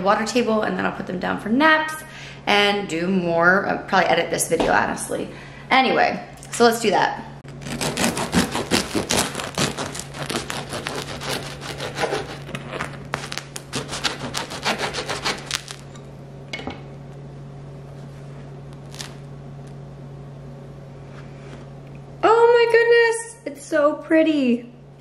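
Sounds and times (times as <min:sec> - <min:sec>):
bread knife sawing through bread: 0:07.6 - 0:15.8.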